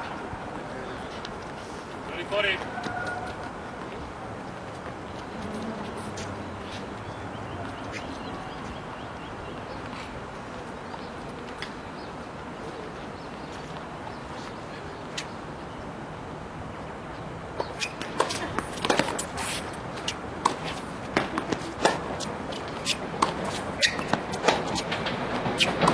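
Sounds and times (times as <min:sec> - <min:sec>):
outdoor background noise: 0:00.0 - 0:25.9
tennis ball bouncing: 0:17.6 - 0:25.9.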